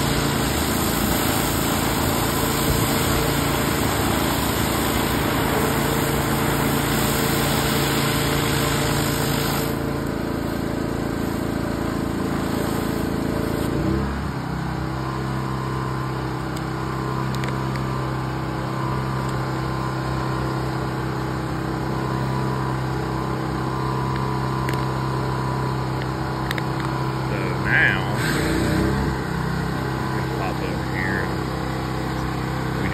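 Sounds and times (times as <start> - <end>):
high-pressure water hissing: 0.0 - 13.9, 23.9 - 32.9
small engine running: 0.0 - 32.9.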